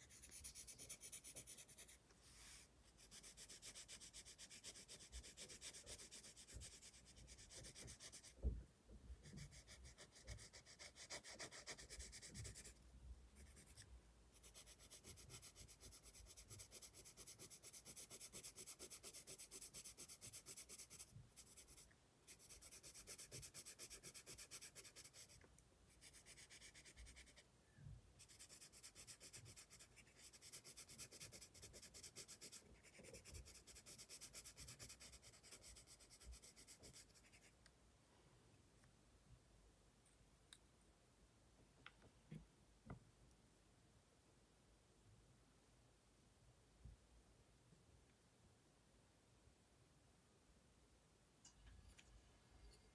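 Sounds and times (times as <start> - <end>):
pencil scratching on paper: 0.0 - 8.4, 9.3 - 12.8, 13.4 - 27.4, 28.2 - 37.6.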